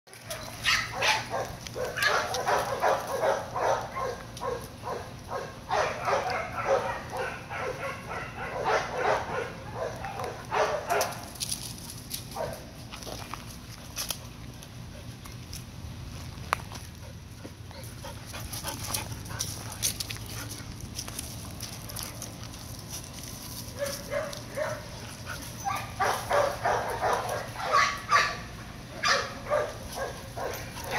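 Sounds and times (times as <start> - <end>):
dog barking: 0.6 - 11.2, 23.8 - 24.9, 25.7 - 30.9.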